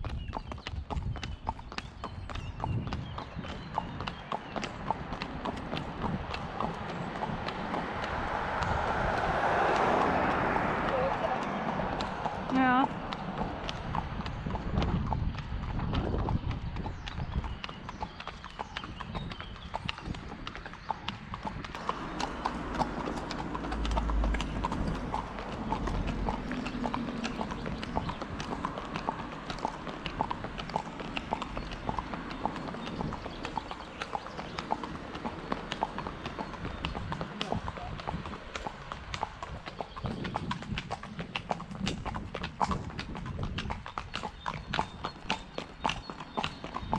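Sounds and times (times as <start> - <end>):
horse hooves on asphalt: 0.0 - 46.9
low rumble: 21.8 - 32.0.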